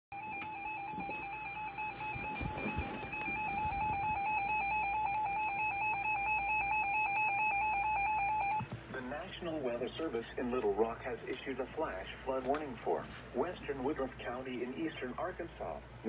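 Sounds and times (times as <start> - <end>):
warbling electronic alarm tone: 0.1 - 8.7.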